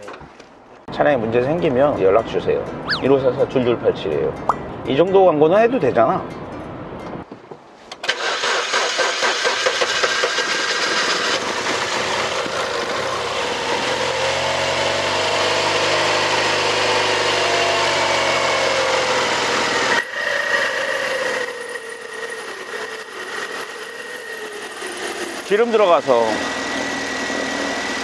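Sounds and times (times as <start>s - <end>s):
high belt squeal: 2.8s - 3.2s, 20.0s - 25.5s
car engine starting and running: 8.0s - 22.2s.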